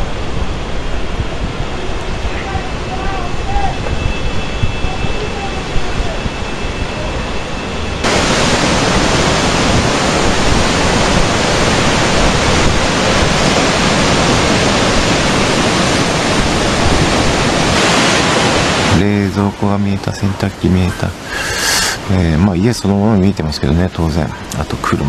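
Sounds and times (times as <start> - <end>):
floodwater rushing and churning: 0.0 - 23.5.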